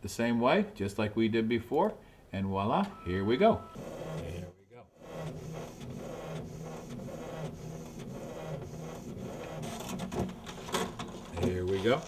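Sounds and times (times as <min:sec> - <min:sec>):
inkjet printer motor whirring: 0:03.8 - 0:12.0.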